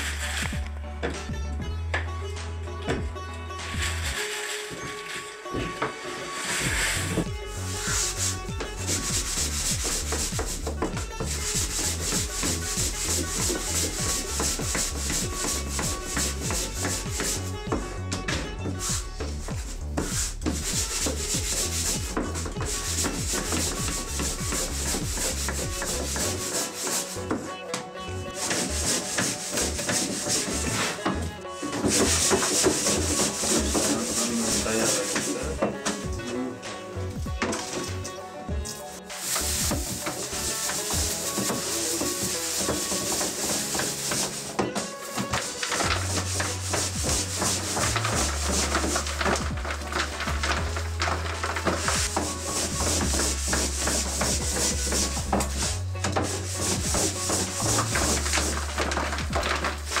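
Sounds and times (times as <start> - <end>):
scraping on a wooden surface: 3.6 - 60.0
shaker-like rasping rhythm: 6.7 - 17.8, 18.7 - 27.5, 28.4 - 36.2, 38.7 - 60.0.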